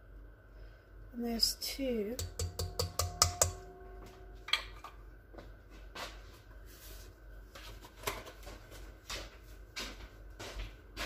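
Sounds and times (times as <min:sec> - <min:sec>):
metal mixing bowl ringing: 0:02.2 - 0:04.8.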